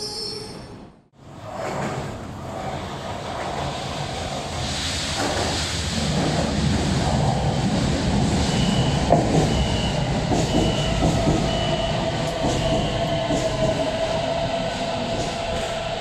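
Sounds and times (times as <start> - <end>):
train inverter whine rising: 3.1 - 16.0
door-closing warning beeps: 8.5 - 13.0.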